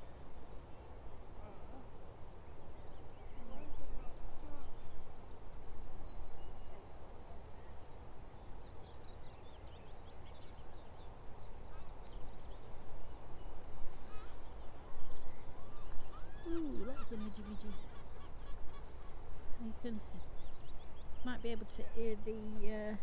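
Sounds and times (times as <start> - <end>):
small birds chirping: 0.0 - 23.0
low bird call: 13.4 - 21.8.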